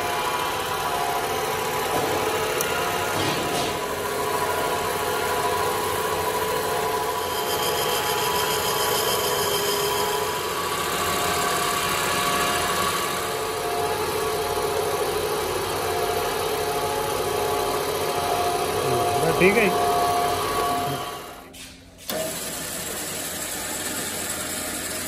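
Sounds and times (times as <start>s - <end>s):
high grinder whine: 0.0s - 25.0s
grinding wheel grinding metal: 2.6s - 13.5s, 18.1s - 21.4s.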